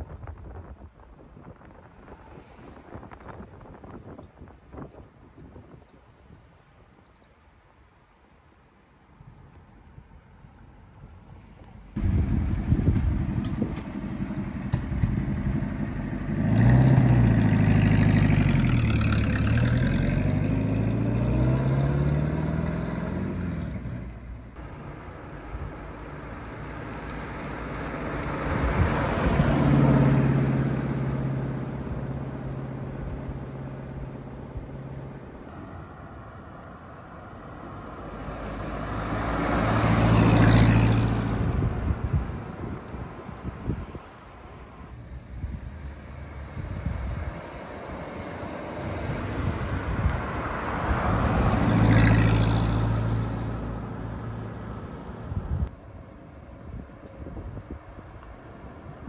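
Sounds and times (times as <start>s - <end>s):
car engine driving past: 12.0s - 42.3s, 45.0s - 55.4s.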